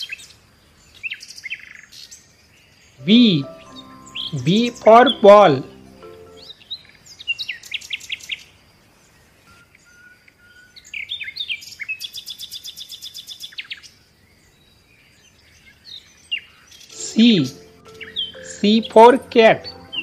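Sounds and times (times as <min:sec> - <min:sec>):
songbirds chirping: 0:00.6 - 0:12.4, 0:13.7 - 0:20.0
bird trill: 0:03.0 - 0:06.5, 0:17.0 - 0:20.0.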